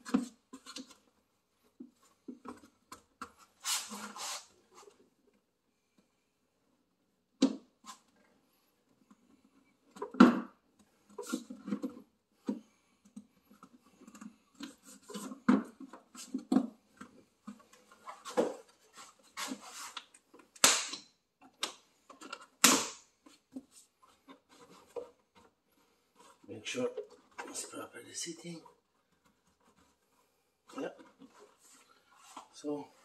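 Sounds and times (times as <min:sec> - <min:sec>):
clicks taps and scrapes of parts: 0:10.8 - 0:25.6.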